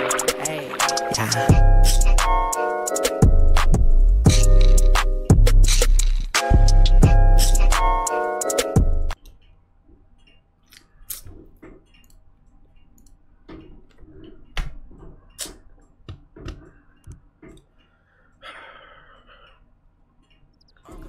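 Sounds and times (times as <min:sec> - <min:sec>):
music: 0:00.0 - 0:09.2
small objects clicking: 0:05.7 - 0:06.4.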